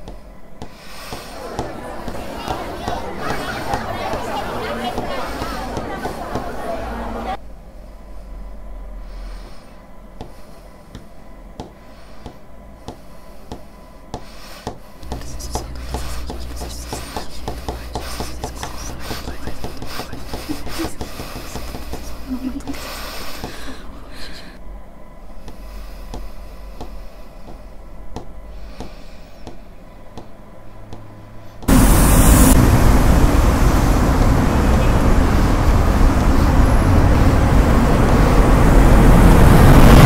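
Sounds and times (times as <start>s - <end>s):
low steady hum: 14.9s - 40.0s
dry scratching and rubbing: 15.0s - 22.2s.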